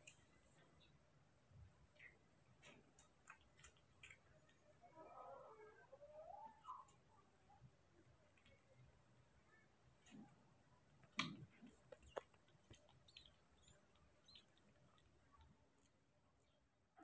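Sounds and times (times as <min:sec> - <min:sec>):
monkey chewing food: 0:11.0 - 0:16.6.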